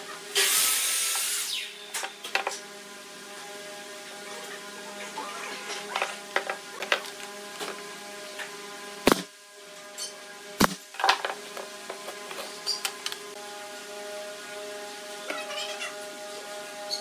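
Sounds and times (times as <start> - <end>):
nail gun firing: 9.1 - 9.3.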